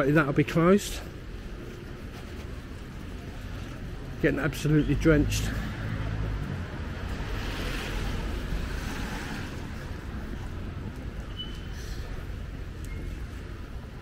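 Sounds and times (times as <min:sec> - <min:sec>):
heavy rain on wet street: 0:05.2 - 0:11.0.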